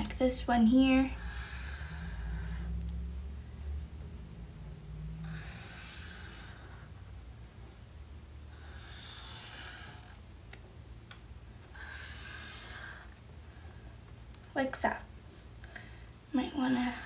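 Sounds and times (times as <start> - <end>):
marker squeaking on paper: 5.3 - 6.9, 8.6 - 10.2, 11.7 - 13.2.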